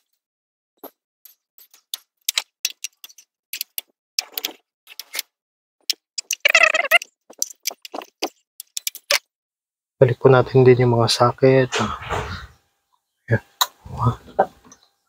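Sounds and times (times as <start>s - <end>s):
warbling pitched chatter: 6.2s - 7.1s.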